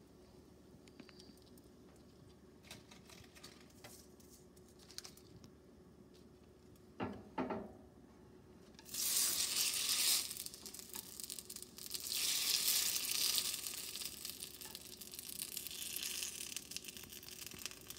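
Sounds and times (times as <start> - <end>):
rice paper sizzling in hot oil: 8.8 - 17.9.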